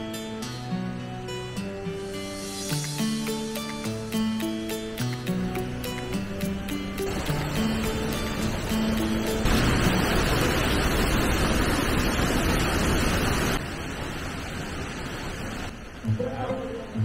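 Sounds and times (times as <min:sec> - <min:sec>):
quieter water rush: 0:02.1 - 0:17.0
water splashing over wall: 0:07.1 - 0:15.3.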